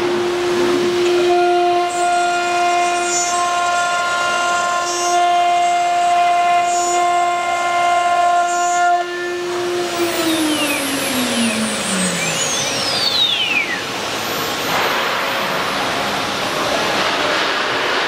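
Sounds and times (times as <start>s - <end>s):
router spindle whining: 8.8s - 14.3s.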